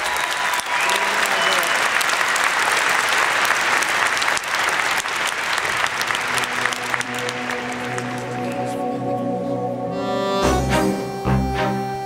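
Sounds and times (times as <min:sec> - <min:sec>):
audience applauding: 0:00.0 - 0:09.1
low sustained musical tones: 0:06.4 - 0:12.0.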